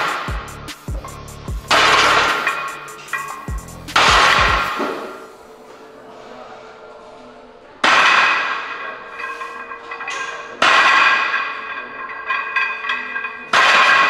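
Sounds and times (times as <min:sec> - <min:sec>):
weight plates clinking: 0:00.0 - 0:05.6, 0:07.8 - 0:14.0
barbell clanging on metal pins: 0:01.1 - 0:05.3, 0:07.8 - 0:14.0.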